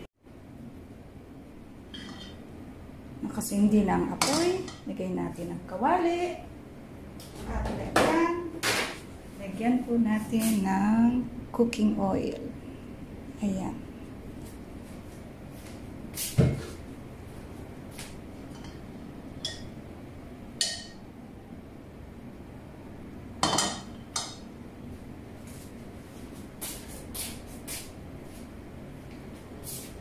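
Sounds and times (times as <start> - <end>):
wok and utensils knocking: 4.2 - 4.8, 20.6 - 21.0, 23.4 - 24.5.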